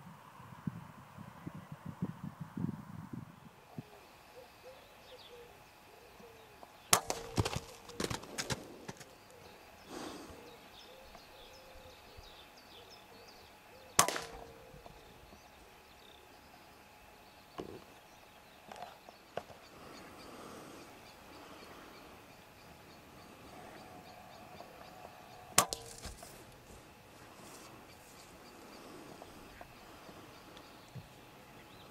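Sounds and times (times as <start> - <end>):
air rifle shot crack: 14.0 - 14.7, 25.6 - 26.2.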